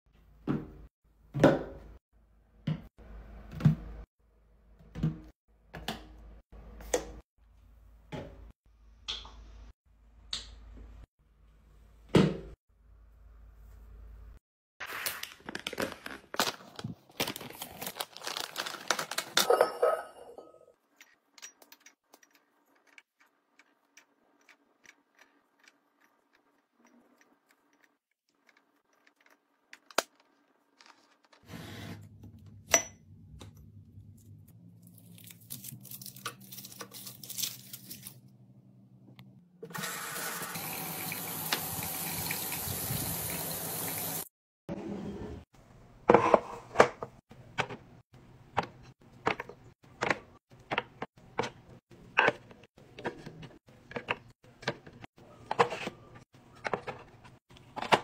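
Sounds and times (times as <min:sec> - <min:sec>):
crinkling plastic packaging: 0:14.9 - 0:19.4, 0:34.9 - 0:38.3
tap water running into basin: 0:39.7 - 0:44.3.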